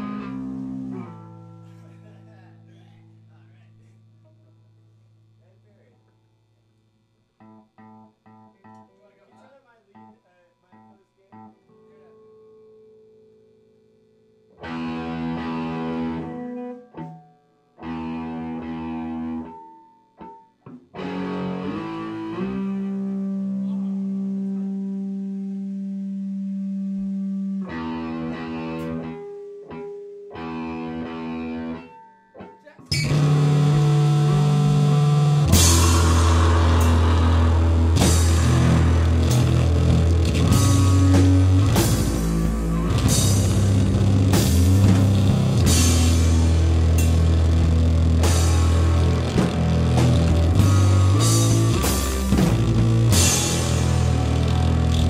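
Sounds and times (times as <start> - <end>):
distorted electric guitar chords: 0.0 - 5.4, 14.3 - 55.0
rock band playing loud: 32.9 - 55.0
drums and cymbals crashing: 35.4 - 47.3, 48.2 - 54.7.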